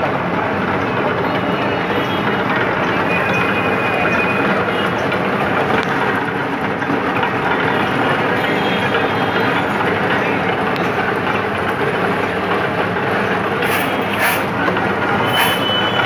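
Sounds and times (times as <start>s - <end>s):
juice crusher rollers turning: 9.4s - 16.0s.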